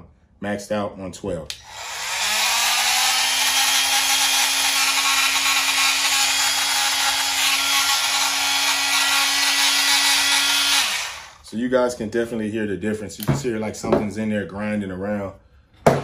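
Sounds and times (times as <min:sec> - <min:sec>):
oscillating tool buzzing: 0:01.6 - 0:11.4.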